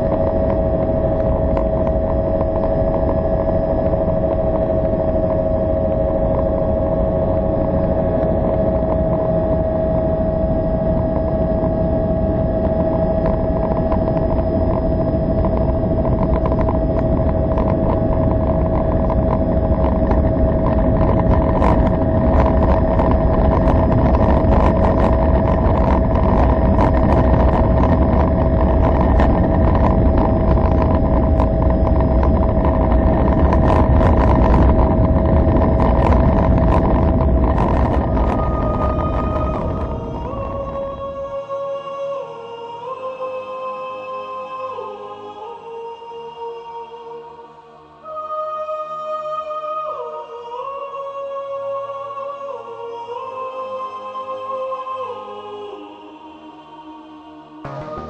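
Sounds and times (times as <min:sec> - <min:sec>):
helicopter rotor rumble: 0:00.0 - 0:41.8
wind on microphone: 0:00.0 - 0:43.3
helicopter turbine whine: 0:00.0 - 0:48.5, 0:55.6 - 0:58.0.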